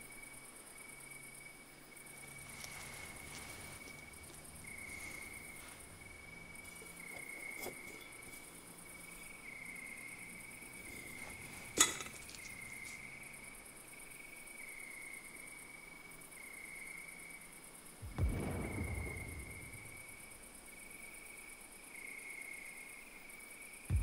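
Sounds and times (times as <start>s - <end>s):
crickets trilling: 0.0s - 24.0s
low thud: 18.0s - 20.4s.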